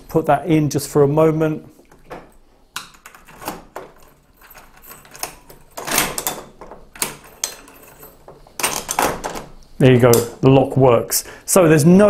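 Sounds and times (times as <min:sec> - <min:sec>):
key clicking and rattling in lock: 0:02.8 - 0:10.3.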